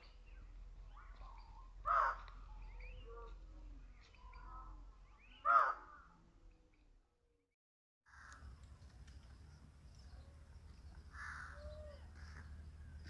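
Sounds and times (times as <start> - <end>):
harsh bird calls: 0.3 - 3.4, 4.0 - 6.0, 10.0 - 13.0.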